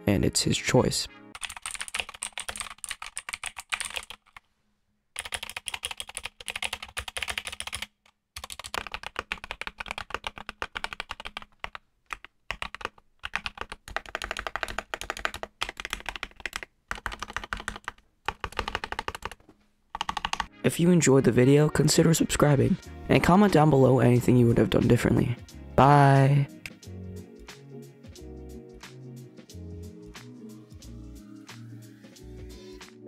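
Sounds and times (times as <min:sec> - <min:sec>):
fast typing on mechanical keyboard: 0:01.4 - 0:04.4, 0:05.2 - 0:20.5.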